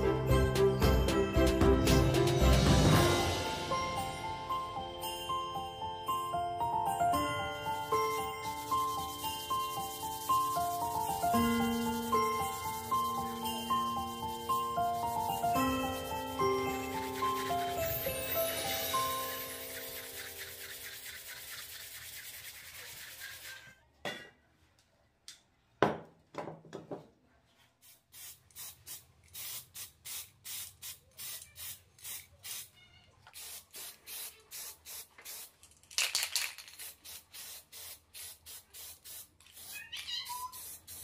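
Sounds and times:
spray-paint can hissing: 7.8 - 23.7, 27.8 - 32.7, 33.3 - 41.0
sandpaper rubbing on wood: 8.4 - 13.2, 14.4 - 23.7, 36.9 - 41.0.

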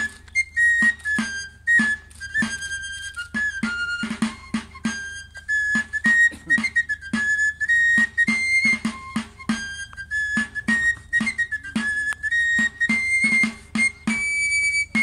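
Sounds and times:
regular drum beat: 3.3 - 15.0.

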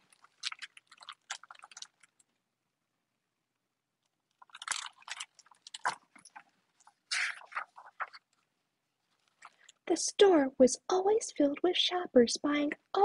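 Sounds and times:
book pages turning: 4.3 - 8.5.

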